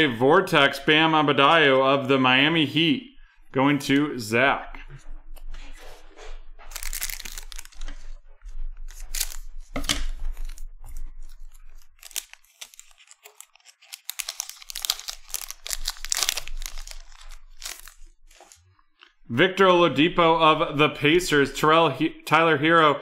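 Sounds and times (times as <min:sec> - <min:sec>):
trading cards rustling and flicking: 0:05.8 - 0:19.0
foil wrapper crinkling and tearing: 0:06.7 - 0:08.2, 0:08.8 - 0:18.8.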